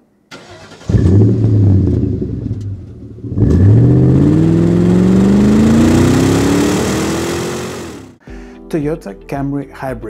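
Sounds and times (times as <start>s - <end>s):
car engine revving: 0.4s - 8.2s.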